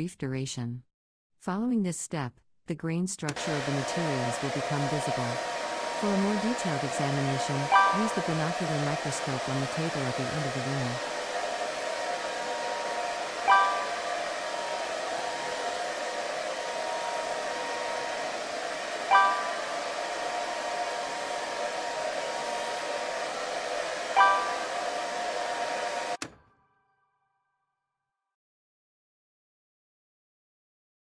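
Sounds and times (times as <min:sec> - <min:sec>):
hair dryer blowing: 0:03.3 - 0:26.2.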